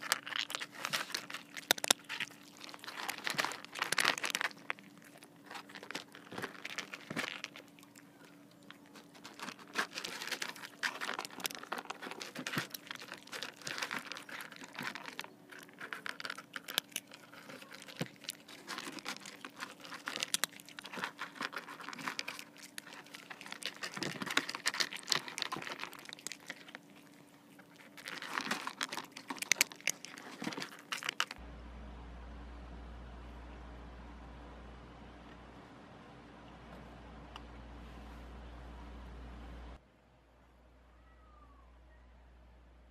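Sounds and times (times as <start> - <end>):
cats crunching dry kibble: 0.0 - 31.4.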